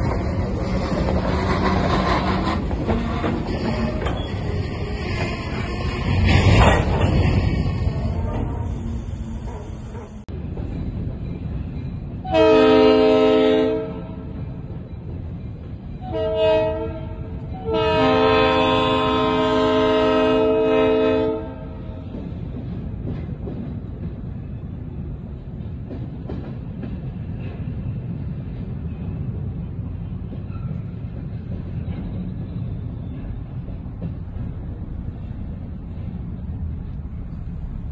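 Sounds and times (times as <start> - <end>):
locomotive air horn blasts: 12.3 - 14.2, 16.0 - 22.0.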